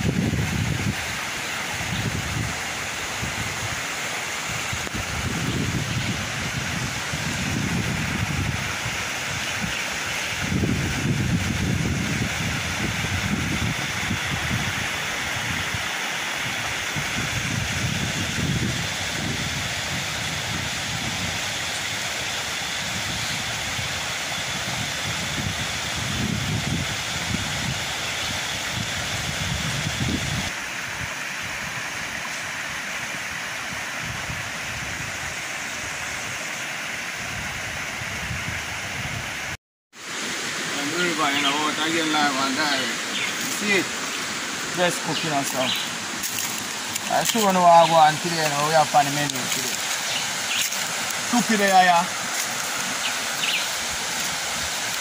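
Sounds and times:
wind buffeting microphone: 0:00.0 - 0:01.2, 0:01.8 - 0:03.8, 0:04.5 - 0:15.8, 0:16.4 - 0:21.6, 0:22.6 - 0:30.6
river water over rocks: 0:00.0 - 0:26.1, 0:30.5 - 0:37.4, 0:40.0 - 0:55.0.

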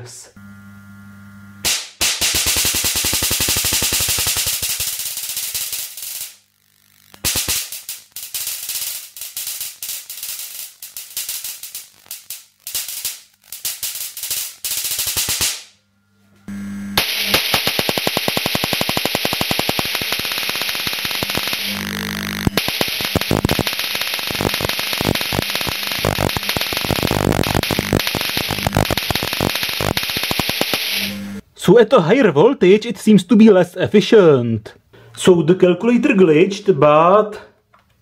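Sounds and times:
low mains hum: 0:00.0 - 0:01.6, 0:15.7 - 0:17.0
steady interference hiss: 0:00.0 - 0:15.7, 0:17.0 - 0:31.4
electric discharge crackling: 0:00.5 - 0:15.8, 0:16.5 - 0:31.4.

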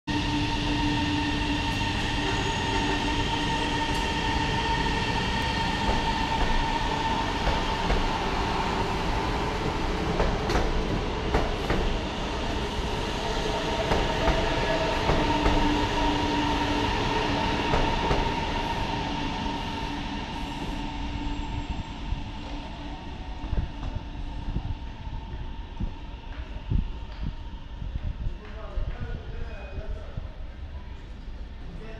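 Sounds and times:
electric train drive humming: 0:00.1 - 0:28.3.

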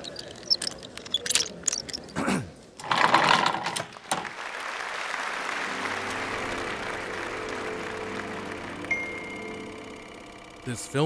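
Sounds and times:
mechanical whirr: 0:08.7 - 0:10.8.

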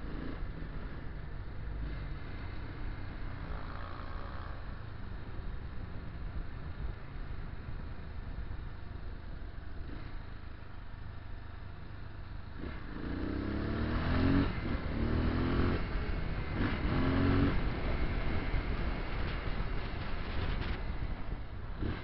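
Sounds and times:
motorcycle engine accelerating: 0:12.5 - 0:22.0.

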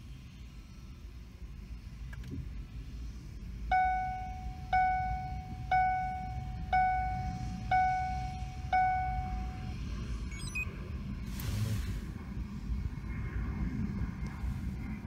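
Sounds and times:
car electronic warning chime: 0:03.7 - 0:10.7
faint falling high beeps: 0:03.7 - 0:10.7.

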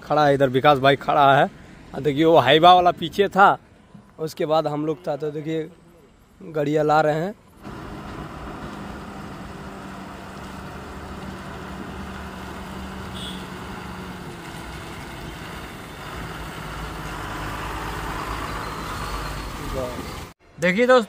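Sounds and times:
diesel truck engine running: 0:07.6 - 0:20.4.

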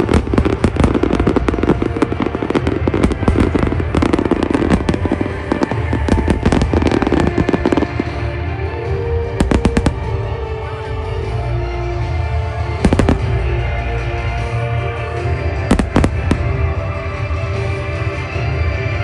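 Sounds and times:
fireworks bangs and crackles: 0:00.0 - 0:19.0
music: 0:00.0 - 0:19.0.

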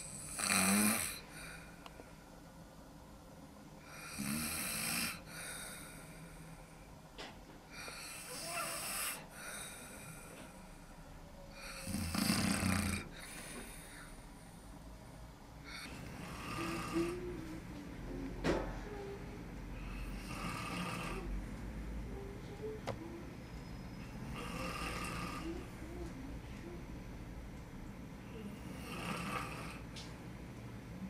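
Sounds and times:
man snoring: 0:00.0 - 0:01.5, 0:03.9 - 0:05.8, 0:07.8 - 0:10.0, 0:11.6 - 0:14.1, 0:15.7 - 0:17.4, 0:20.1 - 0:21.3, 0:24.3 - 0:25.6, 0:28.7 - 0:29.8.

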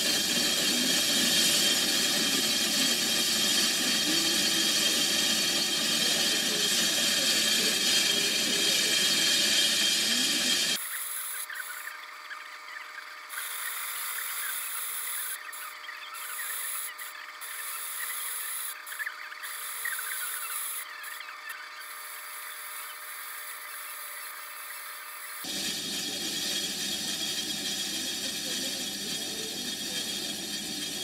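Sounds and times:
tool scratching on iron: 0:00.0 - 0:11.4, 0:25.4 - 0:31.0
lathe machine whine: 0:00.0 - 0:31.0.

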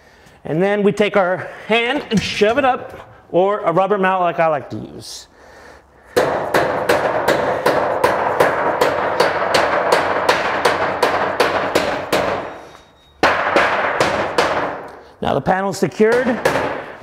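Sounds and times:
rubber mallet striking metal panel: 0:06.2 - 0:12.5, 0:13.2 - 0:14.8.

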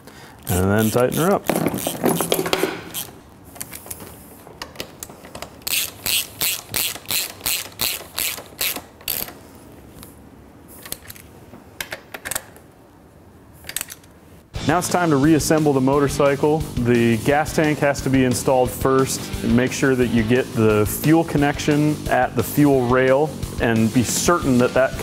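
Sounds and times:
socket ratchet clicking: 0:00.4 - 0:04.0, 0:04.7 - 0:09.4.

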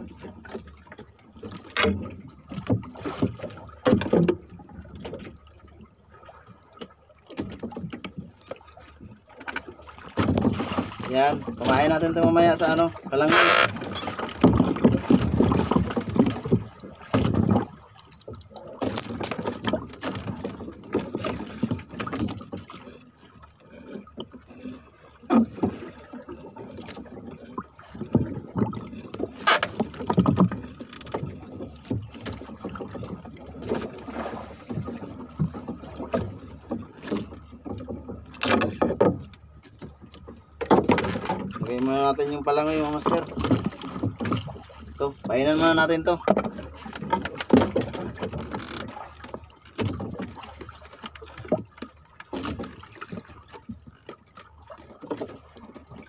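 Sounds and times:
fishing gear knocking and rustling: 0:13.3 - 0:22.8, 0:26.7 - 0:41.8, 0:43.0 - 0:44.6, 0:45.8 - 0:56.0
knocks against boat hull: 0:40.6 - 0:41.6.

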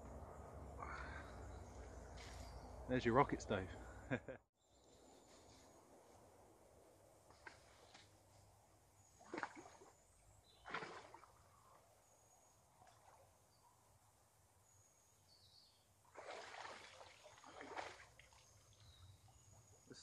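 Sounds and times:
water splashing: 0:09.2 - 0:09.9, 0:10.6 - 0:11.5, 0:16.1 - 0:18.8
water sloshing: 0:09.2 - 0:10.0, 0:10.6 - 0:11.5, 0:16.1 - 0:19.0.

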